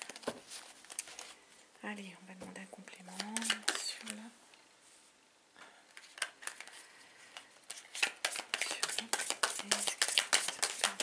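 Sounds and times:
cards being shuffled: 3.1s - 4.2s, 5.9s - 11.0s.

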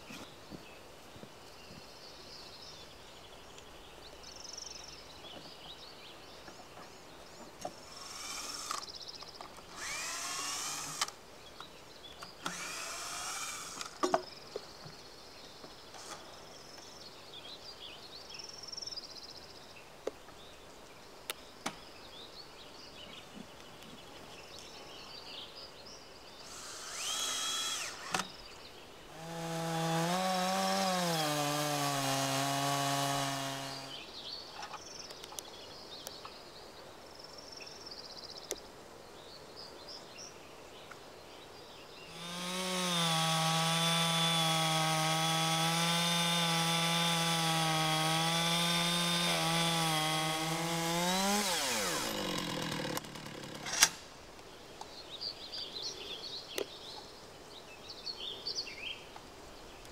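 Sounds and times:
chainsaw cutting through log: 7.8s - 8.9s, 9.7s - 11.2s, 12.4s - 14.0s, 26.4s - 28.3s, 29.1s - 34.0s, 42.1s - 54.0s.

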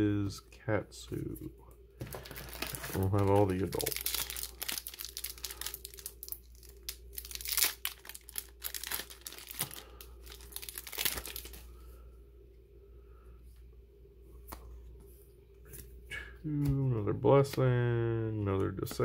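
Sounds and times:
foil wrapper tearing and crackling: 2.1s - 11.6s.

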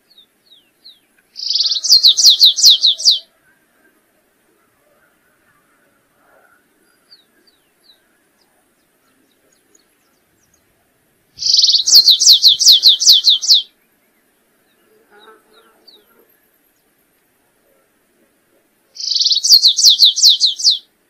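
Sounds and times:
faint high bird chips: 11.4s - 13.7s.

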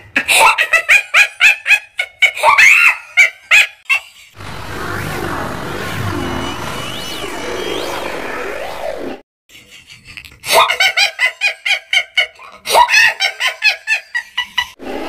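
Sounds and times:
cartoon girl laughing: 0.0s - 4.4s, 9.6s - 14.8s.

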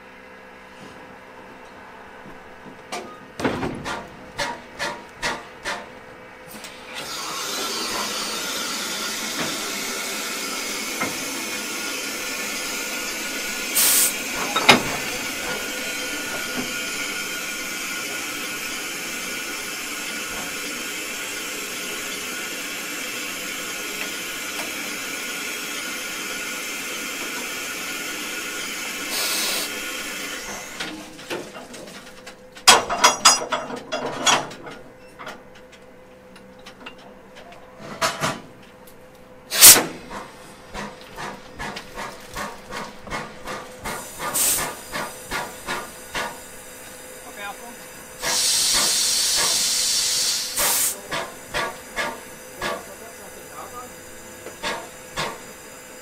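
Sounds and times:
steam locomotive hissing: 6.6s - 31.2s, 39.5s - 56.0s
sharp steam blasts: 6.8s - 30.8s, 39.5s - 40.2s, 43.8s - 46.8s, 48.2s - 53.7s
metallic clanks of coupling gear: 14.4s - 15.0s.

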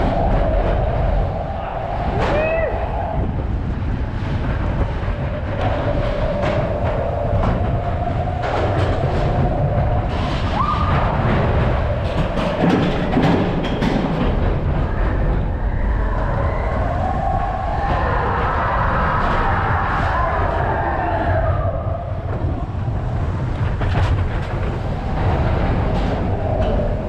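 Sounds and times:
wheels clacking: 0.0s - 21.4s, 22.1s - 27.0s
coaster car rumbling on track: 0.0s - 27.0s.

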